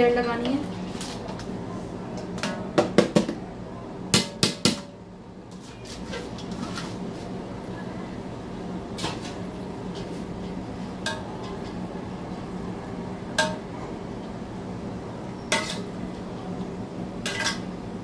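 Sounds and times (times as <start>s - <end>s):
steady low hum: 0.0s - 18.0s
metal spoon clinking on a pot: 15.5s - 15.9s.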